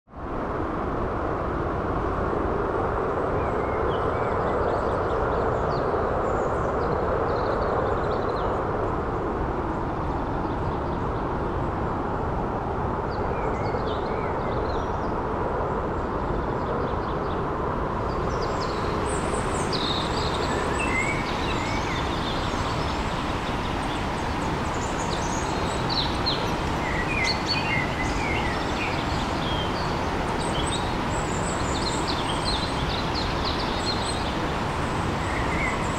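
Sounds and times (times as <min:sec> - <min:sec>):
running water rushing: 0:18.0 - 0:35.9
birds chirping: 0:18.1 - 0:35.9.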